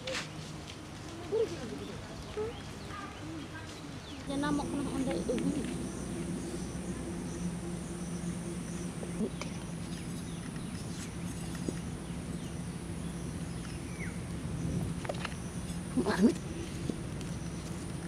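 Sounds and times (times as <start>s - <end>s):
low steady hum: 3.9s - 18.0s
insects chirping: 4.3s - 18.0s.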